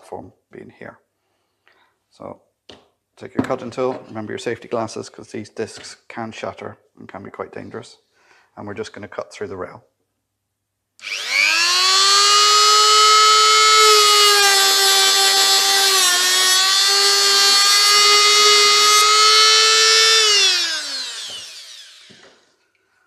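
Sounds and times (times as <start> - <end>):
rotary tool cutting disc whine: 11.0 - 22.4.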